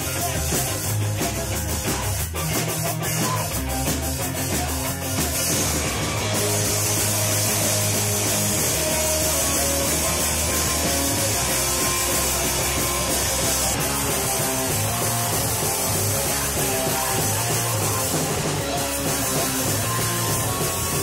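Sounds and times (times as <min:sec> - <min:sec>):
person singing: 0:00.0 - 0:21.0
ska punk band playing live: 0:00.0 - 0:21.0.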